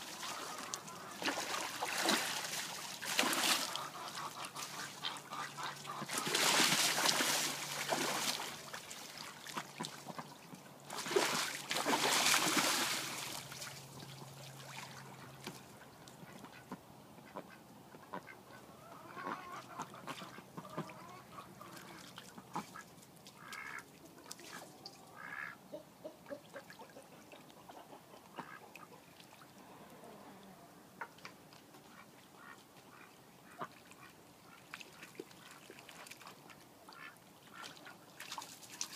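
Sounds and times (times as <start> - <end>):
ducks splashing in water: 0.0 - 17.5, 18.1 - 30.4, 31.0 - 38.9
ducks paddling and dipping: 0.0 - 38.9
duck quacks: 3.4 - 6.4, 16.3 - 22.8, 23.4 - 23.8, 24.4 - 29.0.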